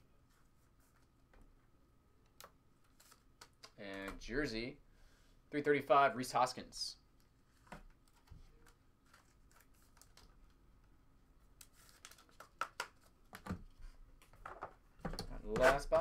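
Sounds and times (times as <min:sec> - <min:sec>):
trading cards rustling and clicking: 0:07.6 - 0:10.5, 0:11.5 - 0:13.6.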